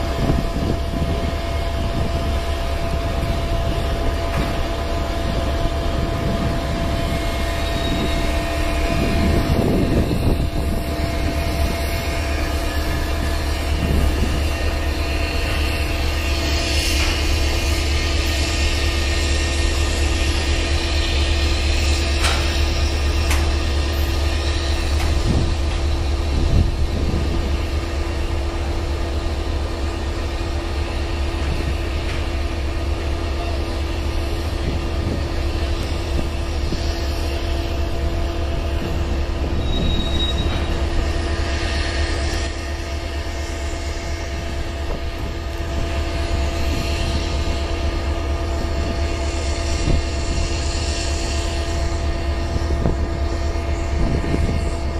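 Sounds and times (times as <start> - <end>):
train wheels rumbling on rail: 0.0 - 54.9
high squeal: 3.8 - 28.4, 33.3 - 44.8.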